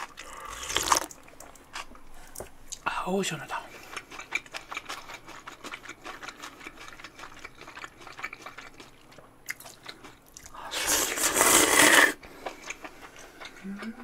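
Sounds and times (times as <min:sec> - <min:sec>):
close chewing: 0:03.7 - 0:14.0
slurping noodles: 0:10.6 - 0:12.2.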